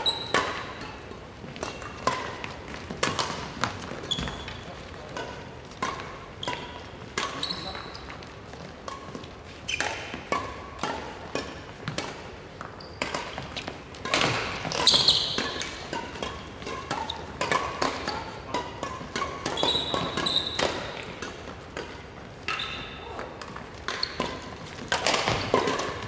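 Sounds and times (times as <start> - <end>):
badminton rackets hitting shuttlecocks: 0.0 - 26.0
sports shoes squeaking on wood: 4.0 - 4.7, 7.4 - 8.1, 12.6 - 13.6, 14.7 - 15.5, 19.5 - 20.6.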